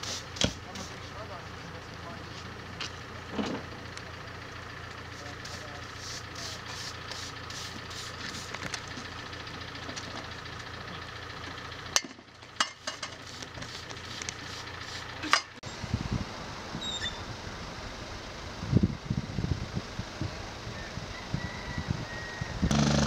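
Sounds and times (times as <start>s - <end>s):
idling vehicle engines hum: 0.0s - 23.0s
wind buffeting microphone: 15.8s - 17.6s, 18.6s - 22.8s.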